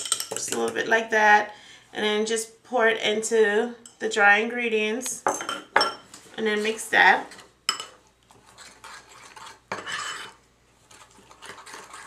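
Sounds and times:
utensil stirring batter in bowl: 6.5s - 12.0s.

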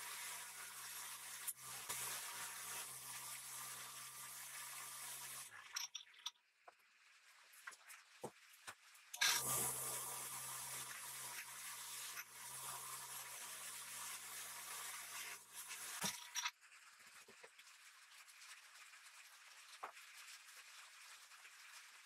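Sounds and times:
metal part hissing against buffing wheel: 9.2s - 16.5s.

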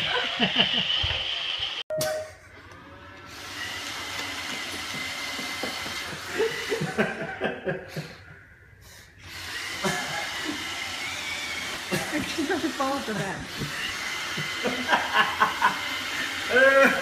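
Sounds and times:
robot vacuum running: 0.1s - 1.8s, 2.7s - 7.0s, 9.2s - 17.0s
adult chuckling: 6.1s - 8.4s, 9.8s - 10.6s, 14.4s - 15.9s.

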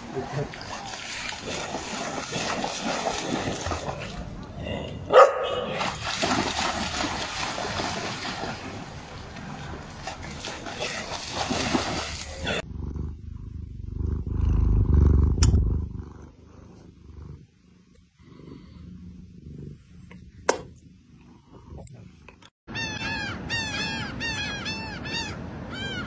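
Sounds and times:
dog splashing through water: 0.0s - 4.5s, 5.4s - 12.6s
cat purring: 12.6s - 20.2s.

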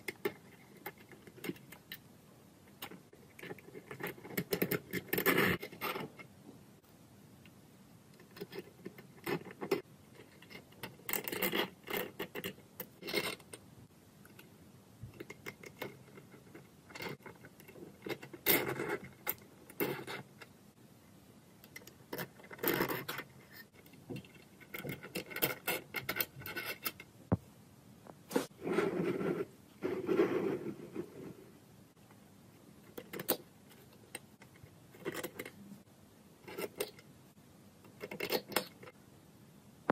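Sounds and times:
metal parts clicking and scraping: 2.8s - 6.3s, 8.2s - 13.6s, 21.6s - 27.1s.

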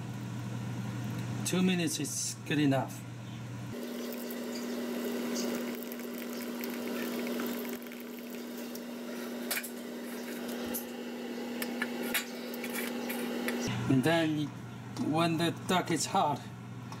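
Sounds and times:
water boiling in a pot: 3.8s - 13.1s.

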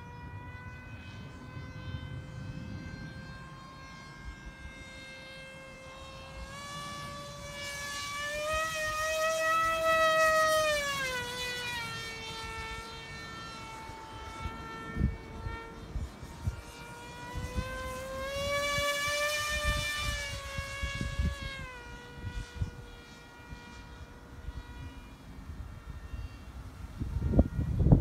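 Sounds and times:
model plane motor whine: 0.0s - 28.0s.

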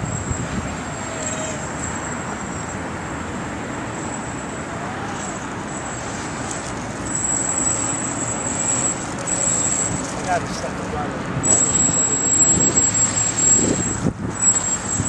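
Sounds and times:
wind on microphone: 0.0s - 1.8s, 11.2s - 15.0s
high motor whine: 0.0s - 15.0s.

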